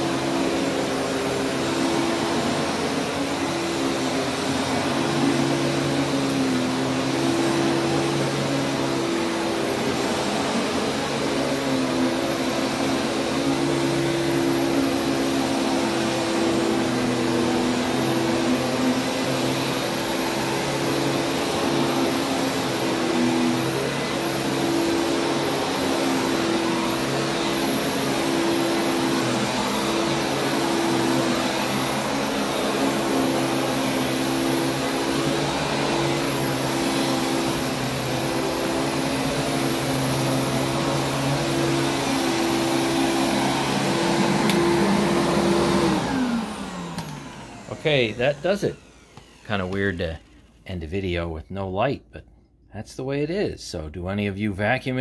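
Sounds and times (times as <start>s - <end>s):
vacuum cleaner running: 0.0s - 50.8s.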